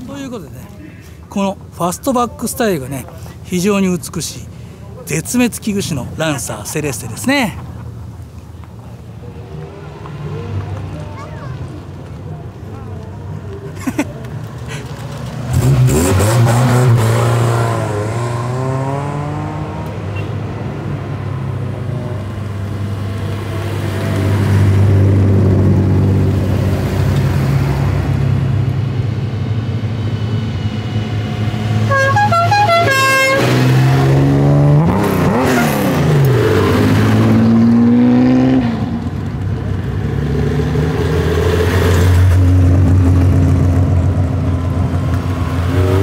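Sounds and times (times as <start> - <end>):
cars revving past: 9.3 - 12.1, 14.2 - 46.0
car horn toots: 31.9 - 33.7.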